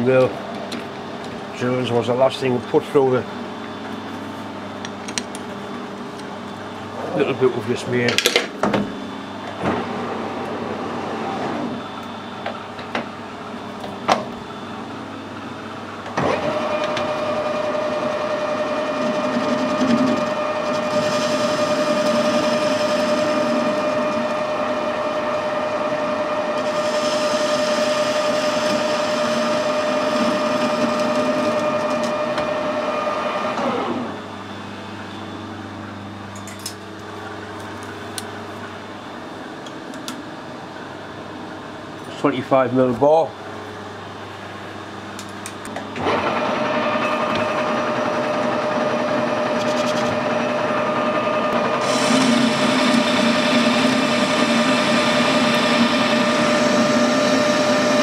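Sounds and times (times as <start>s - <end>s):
metal lathe gear whine: 9.0s - 37.5s, 43.1s - 58.0s
lathe spinning down: 16.2s - 34.3s, 45.9s - 58.0s.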